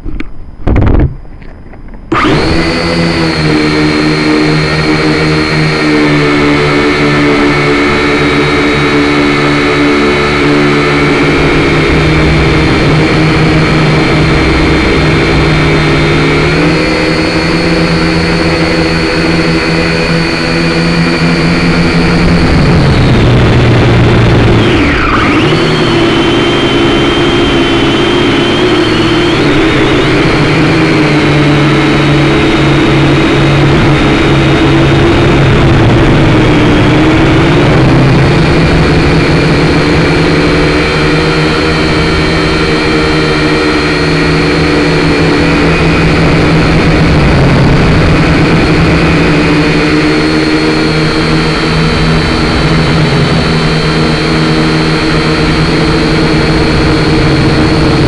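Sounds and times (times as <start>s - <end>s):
drone motors whining: 0.0s - 58.0s.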